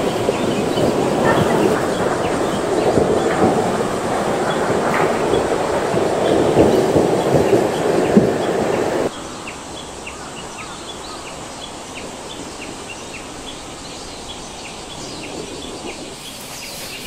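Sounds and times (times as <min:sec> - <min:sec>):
river water rushing: 0:00.0 - 0:09.7.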